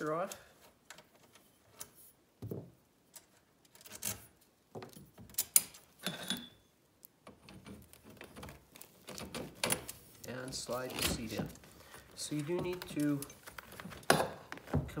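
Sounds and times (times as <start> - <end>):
handling of frame and fabric: 7.3 - 15.0.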